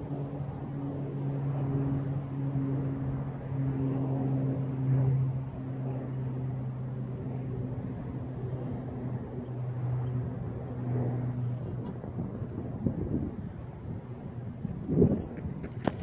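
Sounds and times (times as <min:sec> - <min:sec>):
low machine hum: 0:00.0 - 0:16.0
wind rumble on microphone: 0:00.0 - 0:16.0.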